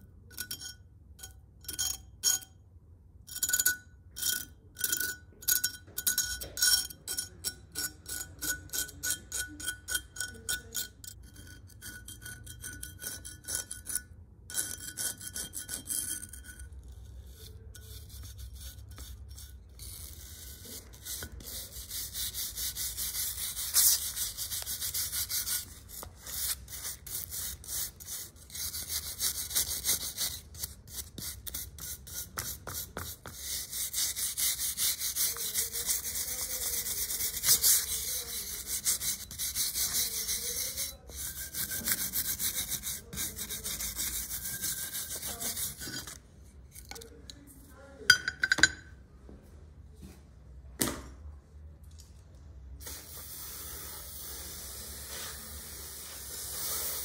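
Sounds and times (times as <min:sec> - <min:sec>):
scratchy rubbing on metal: 0:06.6 - 0:47.0.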